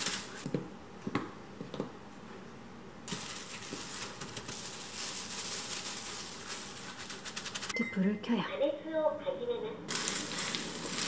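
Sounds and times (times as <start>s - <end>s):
steady rustling hiss: 2.1s - 7.7s.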